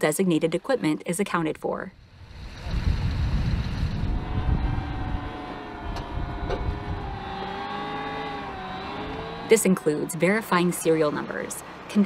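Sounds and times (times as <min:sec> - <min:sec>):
wavering whine: 0:03.8 - 0:11.3
armored vehicle diesel engine rumble: 0:04.0 - 0:12.0.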